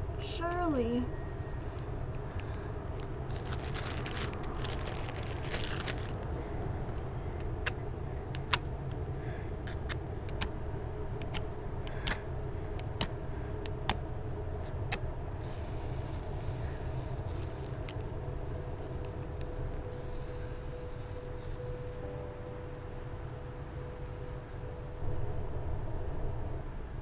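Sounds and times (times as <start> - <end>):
low outdoor rumble: 0.0 - 27.0
rustling: 1.6 - 7.0, 15.2 - 22.0
match scratching on matchbox: 14.9 - 18.1.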